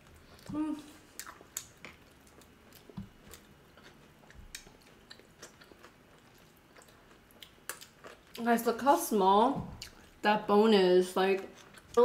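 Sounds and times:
faint chewing: 0.0s - 8.5s, 11.4s - 12.0s.

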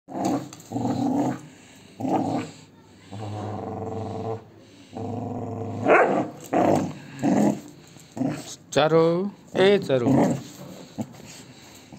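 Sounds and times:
dog play growling: 0.1s - 8.7s, 9.9s - 11.9s.

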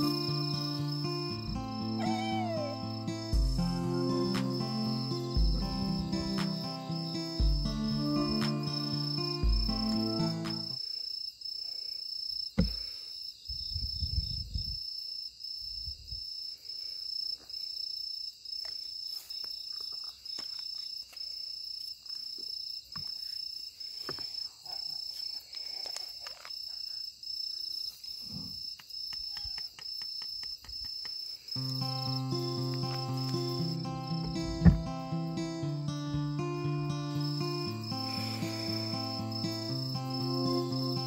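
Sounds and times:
crickets chirping: 0.0s - 41.0s
knock: 12.6s - 12.8s.

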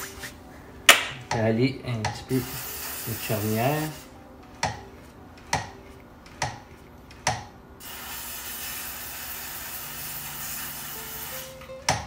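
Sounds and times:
aerosol can spraying: 0.0s - 0.4s, 2.3s - 4.1s, 7.8s - 12.0s.

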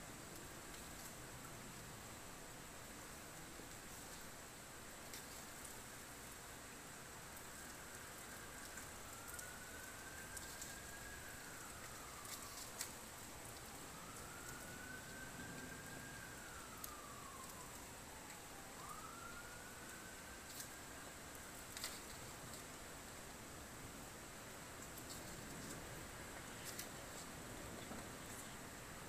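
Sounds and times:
light rain hiss: 0.0s - 29.0s
faint emergency siren wailing: 6.8s - 23.2s
raindrop ticks: 7.3s - 22.7s, 24.8s - 28.6s.

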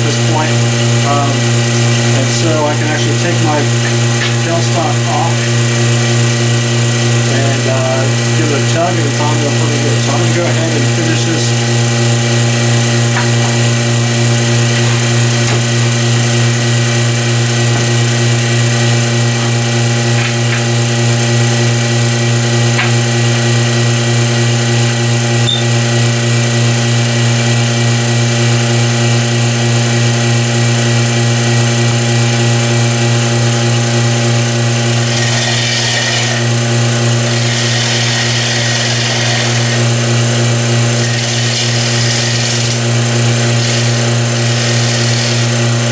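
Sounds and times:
vacuum pump humming: 0.0s - 45.9s
gouge cutting wood hiss: 35.0s - 36.6s, 37.2s - 40.0s, 40.8s - 45.9s.

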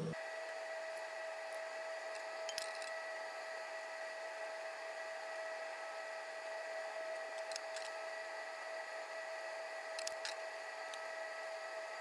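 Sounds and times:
fan-like hiss with whine: 0.0s - 12.0s
seeds heating in oil: 0.2s - 12.0s.

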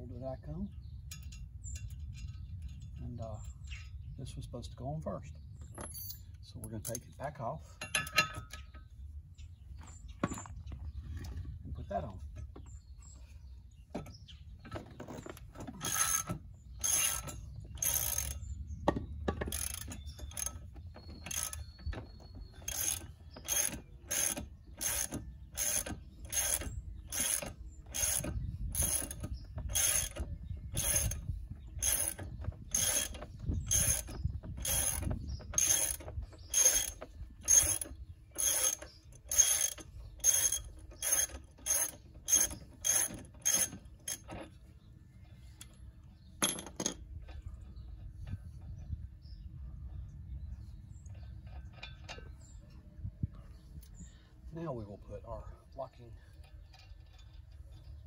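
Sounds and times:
socket ratchet wrench clicking: 22.7s - 30.2s.

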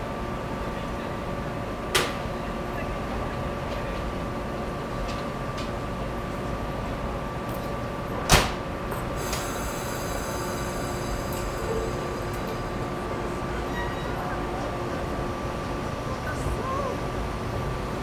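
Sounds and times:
electric train humming: 0.0s - 18.0s
train doors thumping shut: 1.9s - 2.3s, 7.6s - 9.7s.

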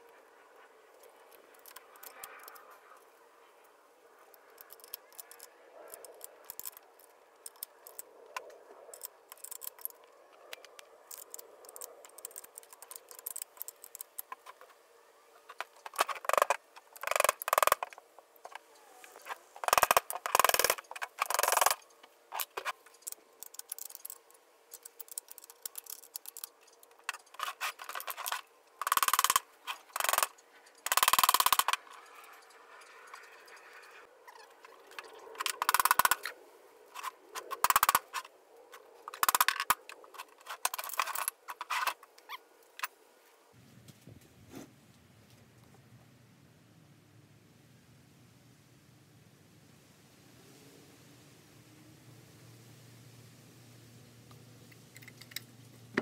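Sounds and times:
tools clicking on engine parts: 4.4s - 8.1s, 10.6s - 14.6s, 15.6s - 18.6s, 19.6s - 33.7s, 34.9s - 36.3s, 37.0s - 38.2s, 39.1s - 42.0s
metal parts scraping and clattering: 19.2s - 36.3s, 39.1s - 42.1s.

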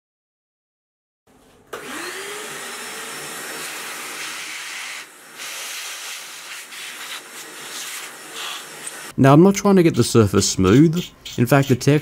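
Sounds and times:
vacuum motor whining and rushing: 1.8s - 9.1s.

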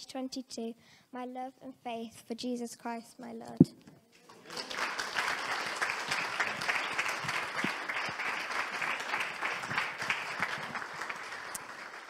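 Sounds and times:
congregation applauding: 4.2s - 12.0s.

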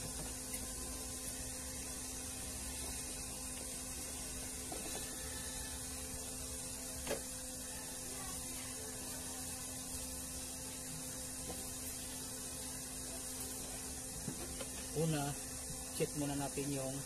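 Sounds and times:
electrical hum and hiss: 0.0s - 17.0s.

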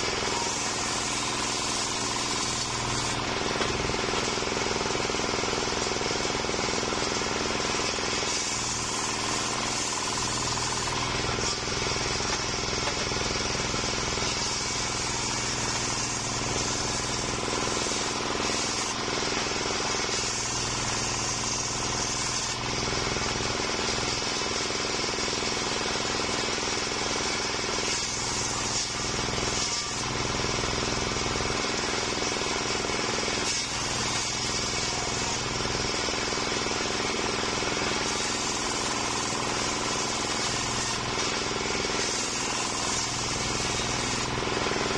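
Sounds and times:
circular sawmill ripping log: 0.0s - 44.9s.

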